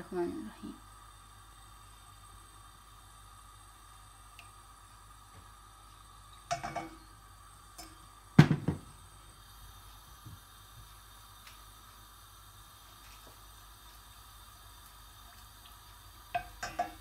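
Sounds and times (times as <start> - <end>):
bottle knocking on counter: 8.4 - 8.9
wooden spoon in metal pan: 16.4 - 17.0.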